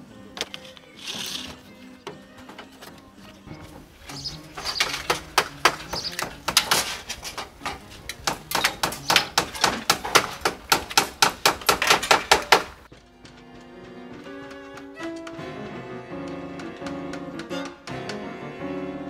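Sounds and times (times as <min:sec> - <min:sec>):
music: 0:00.0 - 0:10.7, 0:11.4 - 0:19.0
hammer tapping on metal: 0:04.6 - 0:15.4.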